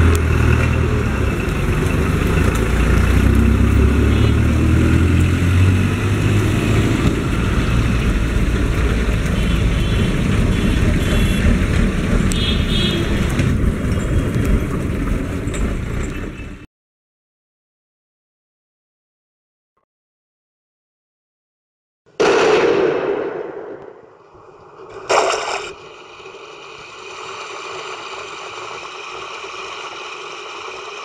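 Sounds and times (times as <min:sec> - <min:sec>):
road traffic noise: 0:00.0 - 0:16.7, 0:24.3 - 0:31.0
vehicle engine humming: 0:00.0 - 0:16.7, 0:24.3 - 0:31.0.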